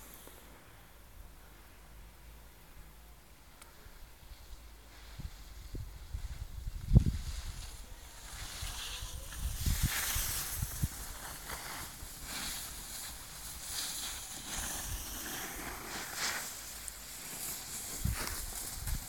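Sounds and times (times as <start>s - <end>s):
wind buffeting microphone: 5.2s - 11.2s.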